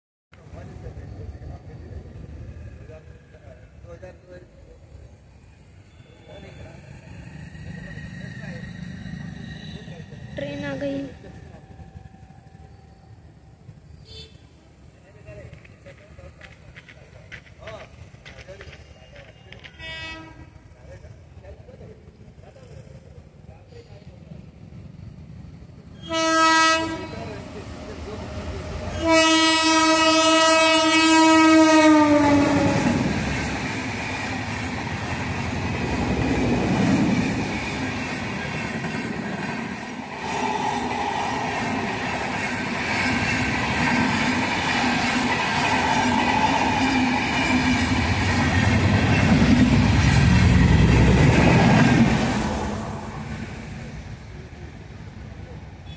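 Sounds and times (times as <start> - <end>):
train wheels clattering on rails: 15.3 - 19.8, 32.5 - 52.4
locomotive horn blasts: 19.8 - 20.5, 26.0 - 27.2, 29.0 - 32.9.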